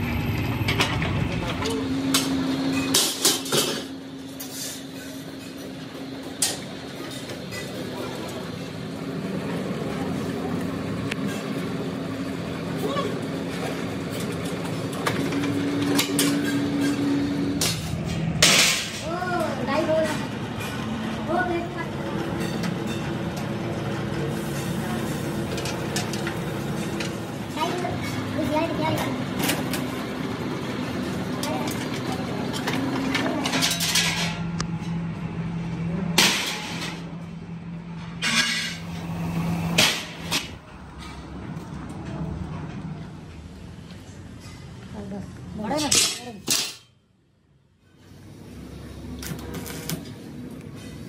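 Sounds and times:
bending machine humming: 0.0s - 43.3s.

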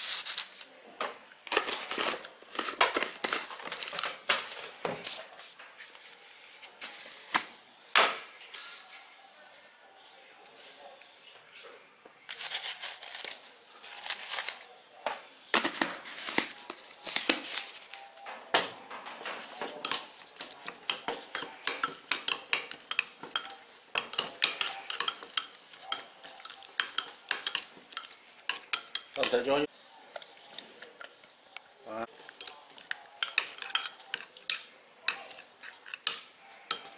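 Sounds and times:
metal spoon clinking in ceramic bowl: 20.6s - 29.4s, 33.2s - 36.9s.

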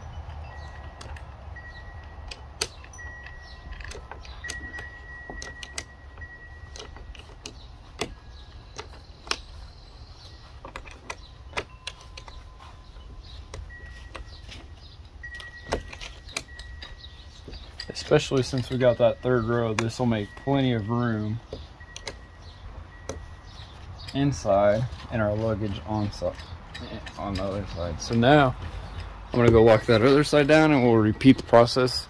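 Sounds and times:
allen key clicking on bolt: 2.0s - 9.7s, 10.6s - 12.5s, 15.3s - 20.6s, 21.5s - 22.3s, 25.7s - 30.1s.

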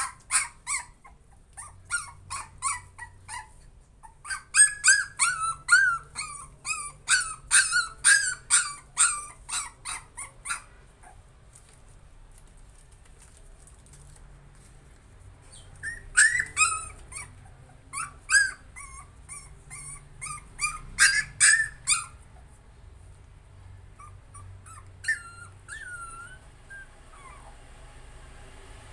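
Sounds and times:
puppy whimpering and yelping: 0.0s - 11.3s, 15.4s - 22.6s, 23.9s - 27.7s.

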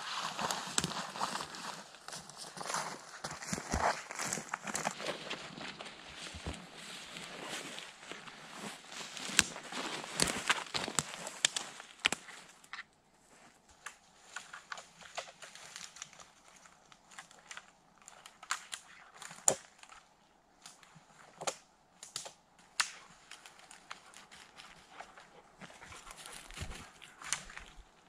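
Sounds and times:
dry twigs snapping underfoot: 8.9s - 12.9s, 13.7s - 28.0s.

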